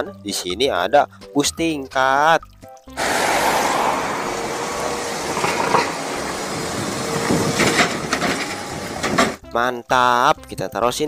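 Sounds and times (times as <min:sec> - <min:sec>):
bus engine running: 0:03.0 - 0:09.4
street traffic noise: 0:03.0 - 0:09.4.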